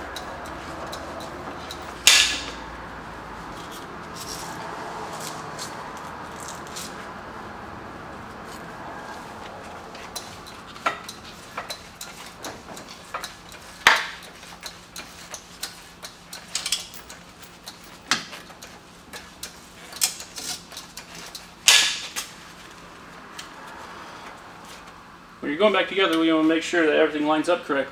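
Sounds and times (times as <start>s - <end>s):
metallic clicks and clunks: 0.0s - 2.7s, 10.0s - 22.3s
floor jack pumping: 9.7s - 22.3s.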